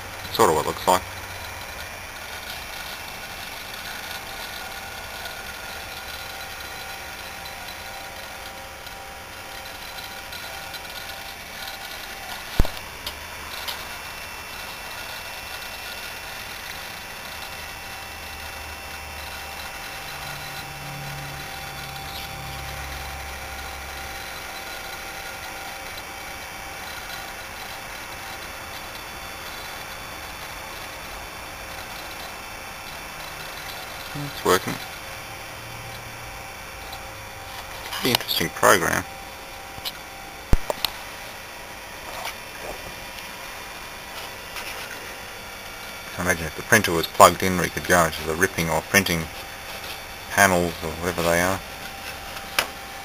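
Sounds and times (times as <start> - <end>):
computer fans whirring: 0.0 - 53.0
sharp click: 39.8 - 41.0.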